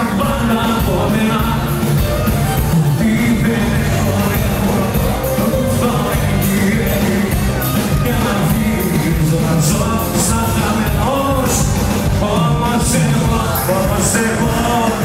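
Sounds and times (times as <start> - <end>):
live music with steady beat: 0.0 - 15.0
person singing: 0.0 - 15.0.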